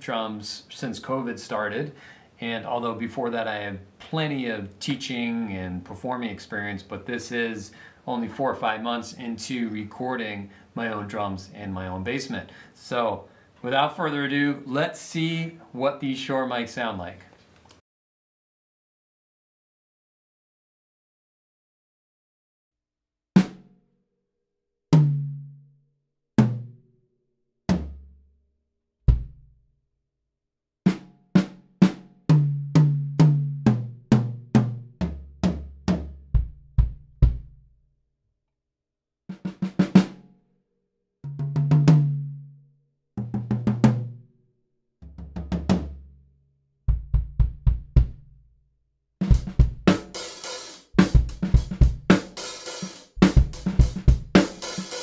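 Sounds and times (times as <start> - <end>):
bass drum: 29.1 - 29.6, 30.9 - 37.7, 41.3 - 42.4, 45.0 - 46.1, 46.9 - 48.4, 49.2 - 50.2, 50.9 - 52.4, 53.1 - 54.9
cymbals and hi-hat: 49.2 - 55.0
tom drum strokes: 49.2 - 55.0.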